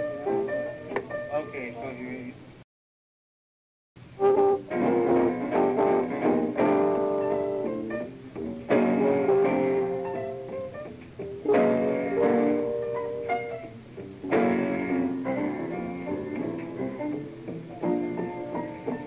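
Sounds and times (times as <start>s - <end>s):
jazz trio playing: 4.2s - 19.0s.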